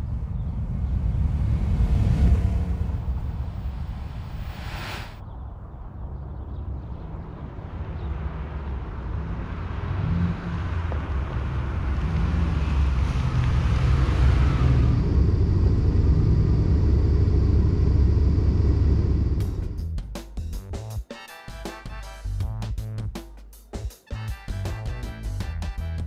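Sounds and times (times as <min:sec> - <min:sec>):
tyre hiss: 0:04.2 - 0:05.2
car engine running: 0:10.8 - 0:19.9.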